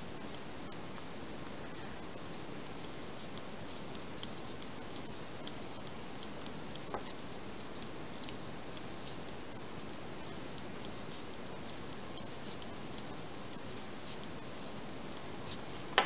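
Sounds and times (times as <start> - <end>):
steady hiss: 0.0 - 16.0
knitting needles clicking: 3.2 - 16.0.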